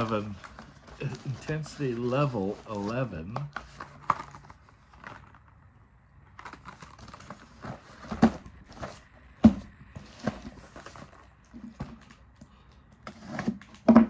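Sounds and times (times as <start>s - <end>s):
cardboard boxes tapping and knocking: 7.2s - 12.2s, 13.0s - 14.0s.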